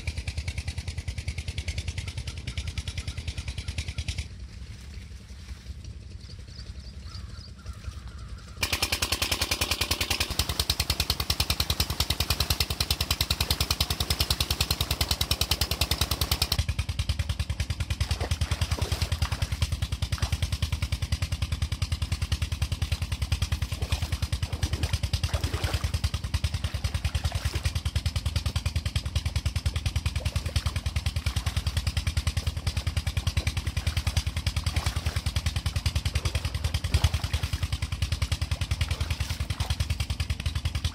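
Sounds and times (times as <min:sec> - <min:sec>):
diesel engine thumping: 0:08.6 - 0:40.9.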